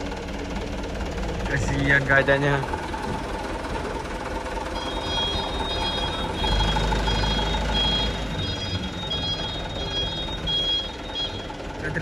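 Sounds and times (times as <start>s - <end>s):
short electronic beeps: 4.8s - 11.5s.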